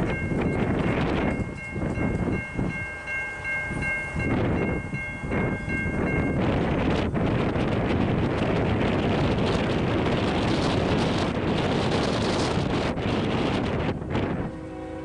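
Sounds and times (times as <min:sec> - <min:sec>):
wind buffeting microphone: 0:00.0 - 0:15.0
distant locomotive air horn: 0:14.3 - 0:15.0.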